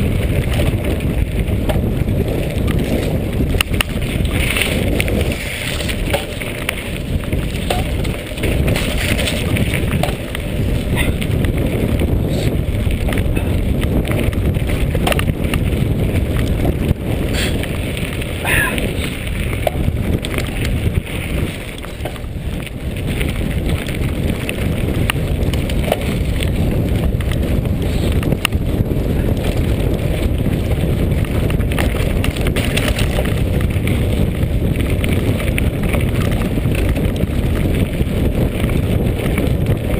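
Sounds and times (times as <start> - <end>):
bike rattling: 0.0 - 39.9
tyres rolling on gravel: 0.0 - 39.9
wind buffeting microphone: 0.0 - 39.9
sharp clicks and knocks: 7.6 - 8.2, 15.0 - 15.4.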